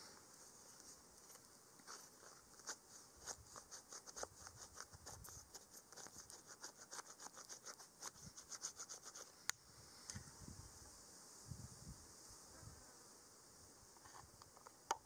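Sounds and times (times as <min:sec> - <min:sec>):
light scratching strokes: 0:00.4 - 0:10.3.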